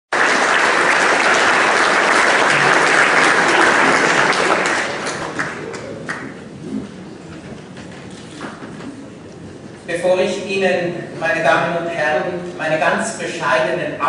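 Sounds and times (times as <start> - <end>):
audience applauding: 0.1 - 6.5.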